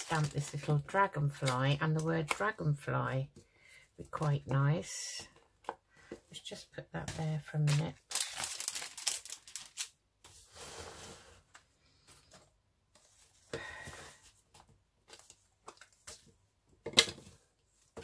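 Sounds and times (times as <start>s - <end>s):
paper and plastic crinkling: 0.0s - 2.6s, 7.0s - 9.9s.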